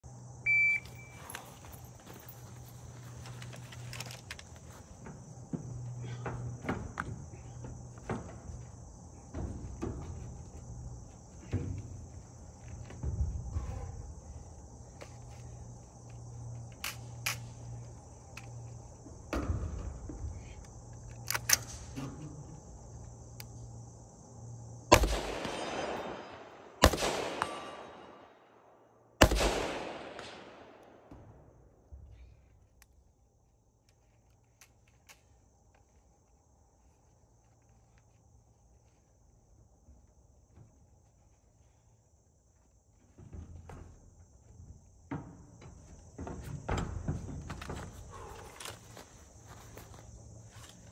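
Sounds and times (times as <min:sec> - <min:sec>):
insects buzzing: 0:00.0 - 0:50.9
rifle shots with echo: 0:24.9 - 0:28.4, 0:29.2 - 0:31.1.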